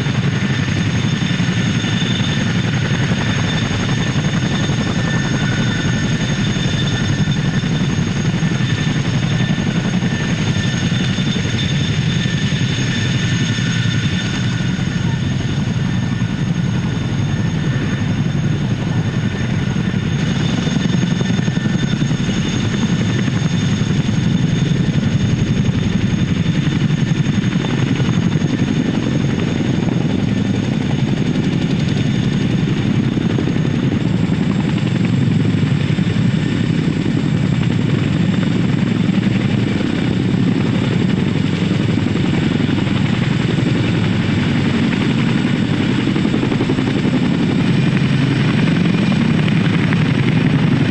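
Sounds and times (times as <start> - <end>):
helicopter rotor beat: 0.0 - 50.9
high turbine whine: 0.0 - 50.9.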